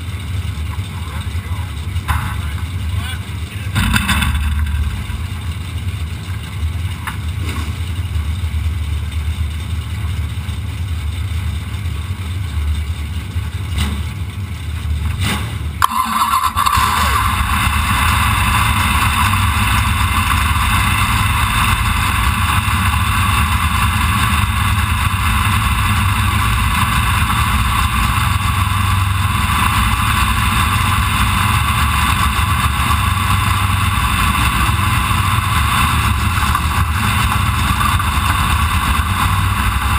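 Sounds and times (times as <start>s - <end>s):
race car engines idling: 0.0s - 39.9s
engine starting and idling: 15.0s - 22.8s.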